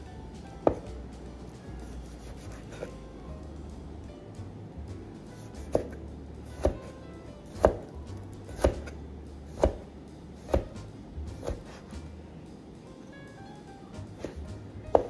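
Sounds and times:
cleaver chopping on cutting board: 0.6 - 1.0, 5.4 - 6.9, 7.5 - 12.1, 14.0 - 15.0.

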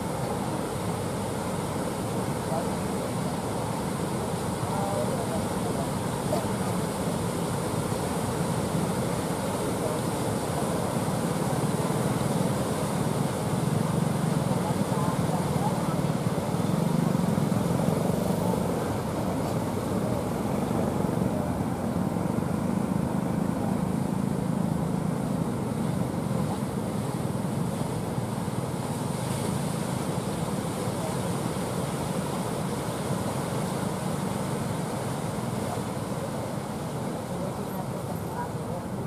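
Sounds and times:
boat engines droning: 0.0 - 39.0
breaking surf: 0.0 - 39.0.

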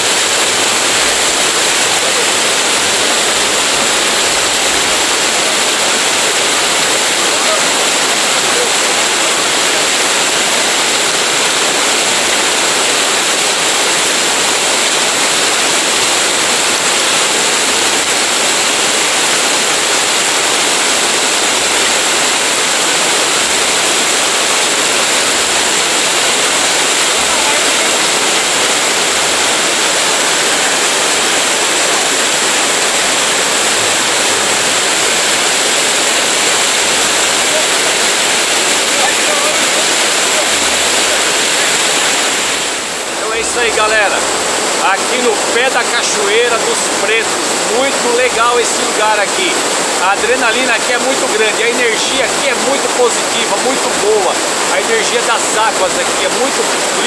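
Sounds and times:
waterfall rushing water: 0.0 - 57.0.

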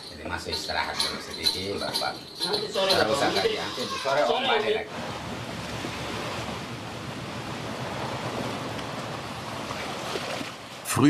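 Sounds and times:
wind: 0.0 - 11.0
ocean waves rushing: 1.0 - 11.0.

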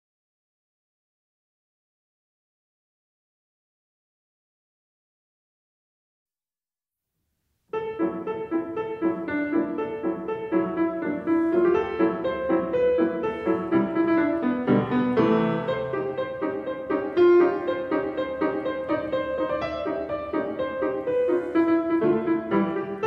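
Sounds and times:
piano music: 7.7 - 23.0.

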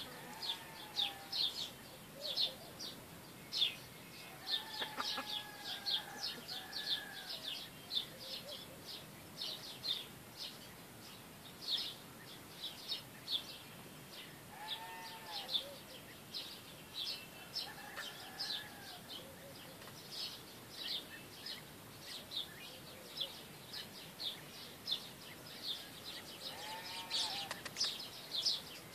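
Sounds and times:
farm animal call: 0.0 - 1.6, 4.2 - 8.6, 14.5 - 15.9, 26.3 - 27.7
small birds chirping: 0.0 - 28.9.

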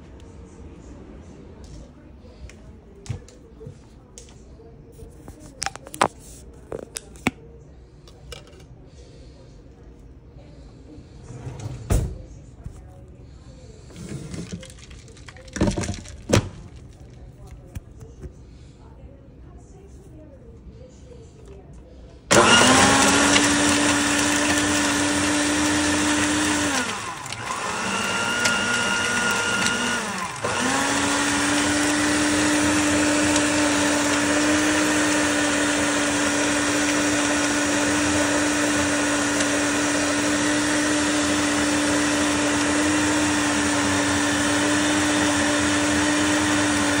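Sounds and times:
blender running: 22.3 - 47.0.

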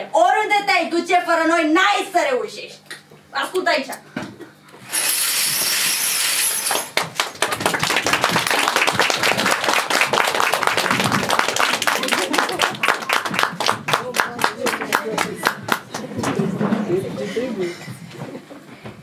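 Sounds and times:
audience applauding: 6.7 - 16.4.

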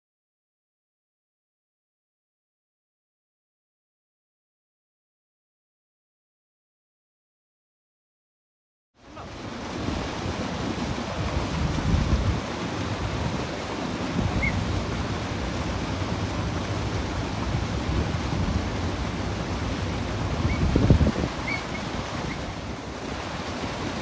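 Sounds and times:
water rushing: 9.0 - 24.0
wind buffeting microphone: 9.3 - 24.0.

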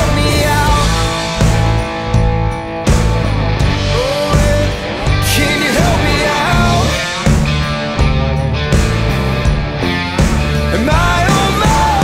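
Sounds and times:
background rock music: 0.0 - 12.0.

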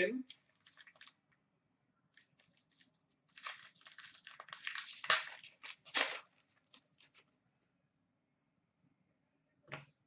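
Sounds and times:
foil wrapper crinkling: 0.3 - 1.3, 2.1 - 7.3.

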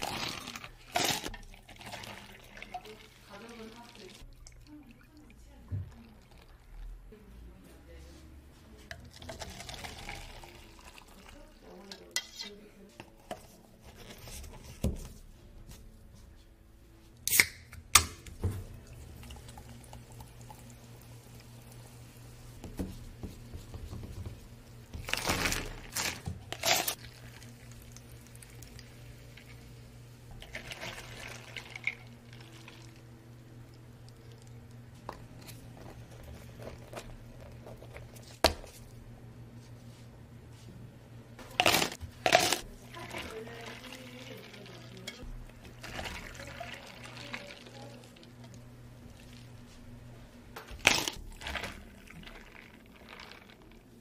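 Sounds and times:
liquid pouring into cups: 0.0 - 6.9, 9.0 - 12.2, 18.6 - 22.6, 24.6 - 38.3, 41.6 - 49.8, 50.6 - 54.0.

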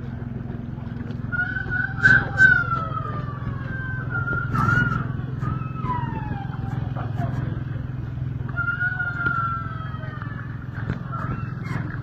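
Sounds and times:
rooster crowing: 8.5 - 10.5.

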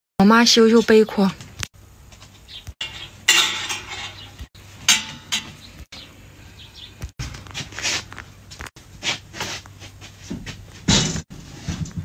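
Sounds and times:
wicker scraping and rustling: 7.2 - 10.7.

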